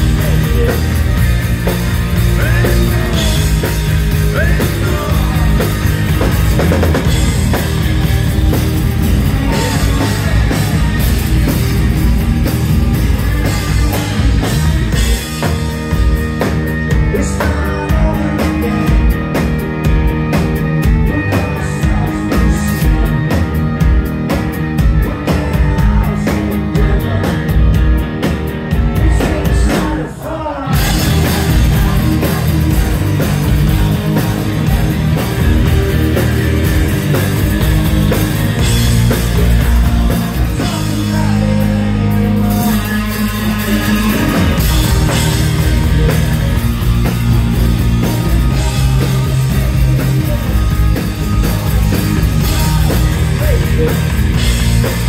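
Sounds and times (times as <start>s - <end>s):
person singing: 0.0s - 8.1s, 8.9s - 11.9s, 13.4s - 19.7s, 20.8s - 23.4s, 24.9s - 27.8s, 28.7s - 55.0s
drum kit: 0.0s - 55.0s
electric guitars: 0.0s - 55.0s.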